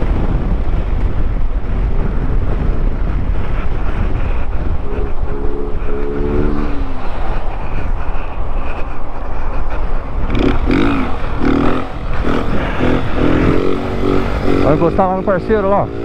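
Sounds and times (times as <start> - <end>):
motorcycle engine running: 0.0 - 7.8, 9.7 - 16.0
wind noise on microphone: 0.0 - 16.0
steady pitched tone: 4.3 - 7.6, 10.6 - 16.0.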